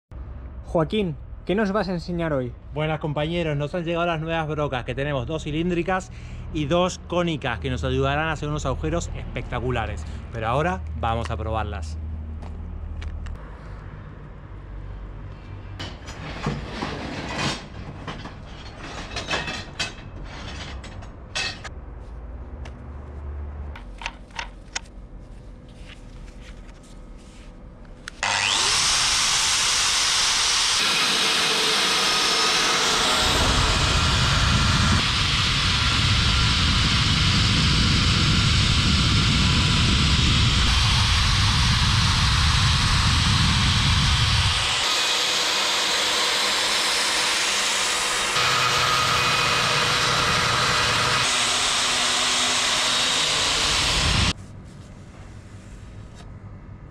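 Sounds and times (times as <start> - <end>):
angle grinder whine: 28.0 - 54.4.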